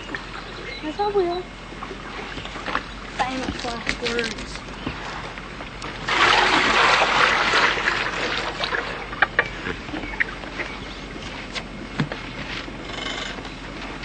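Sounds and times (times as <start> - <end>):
water splashing: 1.7 - 9.4
water rush: 5.0 - 9.5.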